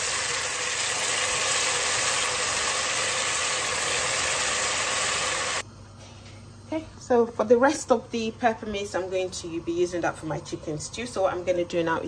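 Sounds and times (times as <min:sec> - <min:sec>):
oil sizzling in a pan: 0:00.0 - 0:05.6.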